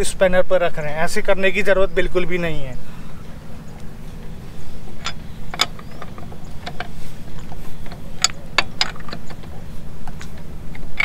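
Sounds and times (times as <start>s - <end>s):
steady low hum: 0.0s - 11.0s
spanner clinking on lug nuts: 4.7s - 11.0s.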